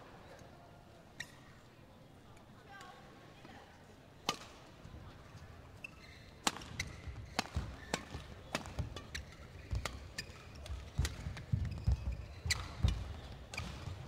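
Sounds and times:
rackets hitting shuttlecock: 6.4 - 14.0.

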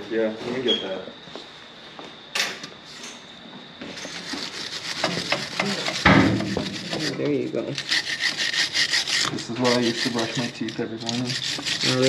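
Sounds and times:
brush scrubbing metal: 4.1 - 12.0.

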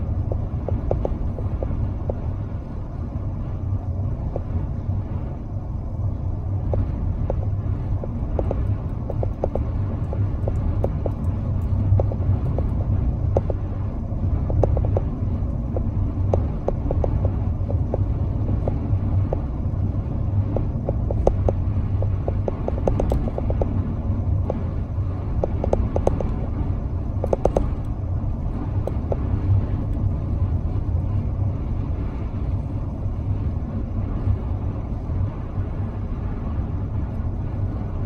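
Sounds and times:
car cabin road rumble: 0.0 - 38.0
light clicks and ticks: 0.1 - 2.4, 6.6 - 13.7, 14.4 - 19.5, 20.4 - 23.8, 24.4 - 26.4, 27.2 - 30.1.

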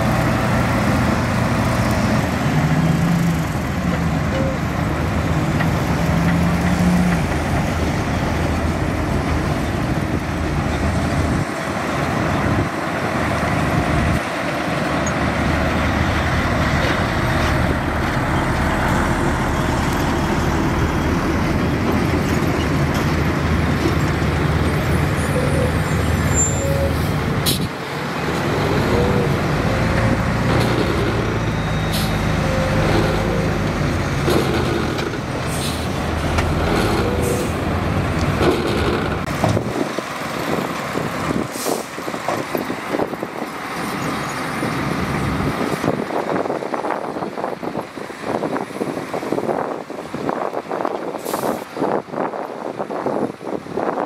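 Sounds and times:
heavy machinery running: 0.0 - 43.8
short squeaky tones: 25.2 - 27.1.

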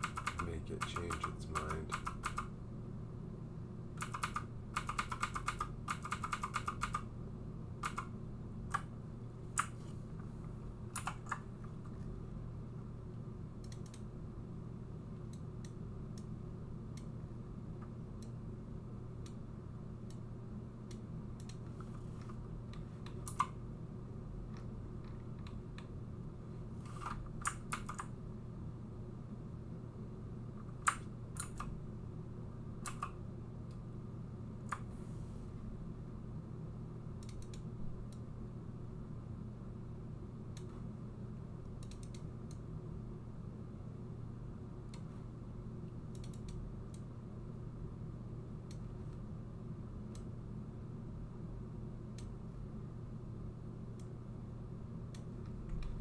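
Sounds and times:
computer keyboard keys clicking: 0.0 - 2.5, 4.0 - 7.1, 7.8 - 8.1, 11.0 - 11.4, 23.2 - 23.5, 27.0 - 28.1, 30.8 - 31.7, 32.8 - 33.2
steady low hum: 0.0 - 56.0.

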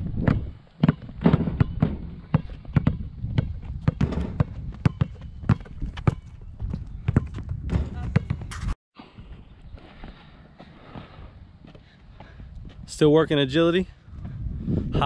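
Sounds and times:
basketballs bouncing on court: 0.2 - 8.5.

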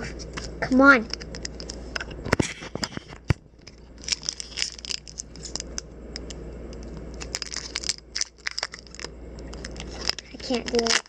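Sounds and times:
foil wrapper crinkling and tearing: 2.6 - 11.0.

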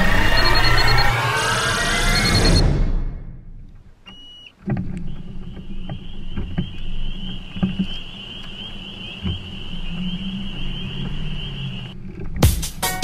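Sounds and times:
short electronic beep: 0.1 - 1.3, 2.0 - 2.7
outboard motor running: 4.1 - 12.5.

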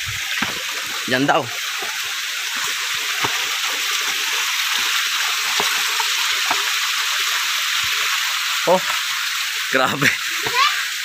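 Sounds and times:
water flowing in creek: 0.0 - 11.0
footsteps on loose stones: 0.2 - 1.0.

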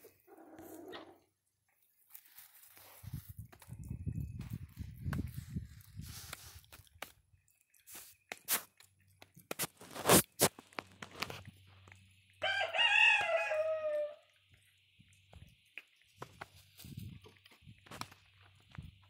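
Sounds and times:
monkey crunching food: 1.8 - 13.4.

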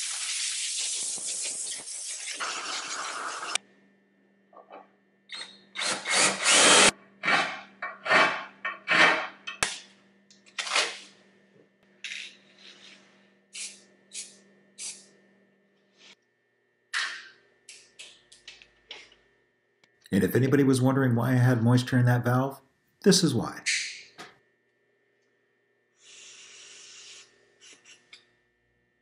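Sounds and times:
compressed air hissing bursts: 0.0 - 3.5, 26.0 - 27.3.

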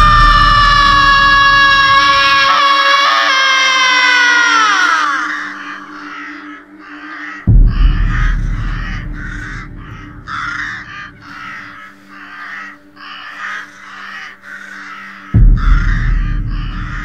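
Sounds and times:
deep boom: 0.0 - 1.9, 7.5 - 11.3, 15.4 - 17.0
low steady drone: 0.0 - 2.6, 3.9 - 17.0
crows cawing: 0.0 - 17.0.

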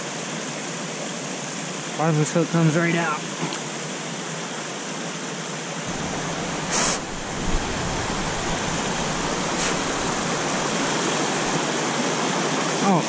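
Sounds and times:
deeper rumble: 5.9 - 11.4
brief hiss: 6.7 - 7.1, 9.5 - 9.9.

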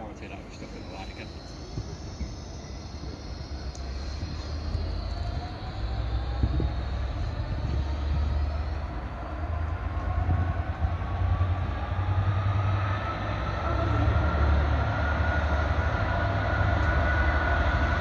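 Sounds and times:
low train rumble: 0.0 - 18.0
train motor whine: 0.0 - 18.0.

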